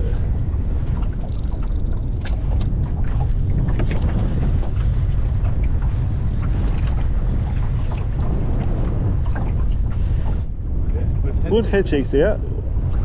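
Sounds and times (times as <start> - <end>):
wind buffeting microphone: 0.0 - 13.0
fishing reel clicking: 1.3 - 2.4.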